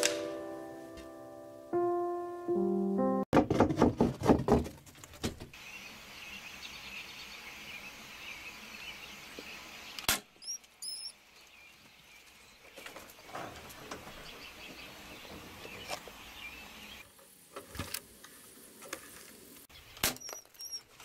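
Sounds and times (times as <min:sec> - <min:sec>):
knocks and handling noise: 0:03.4 - 0:05.6
high squeaks: 0:10.4 - 0:11.1, 0:20.2 - 0:20.9.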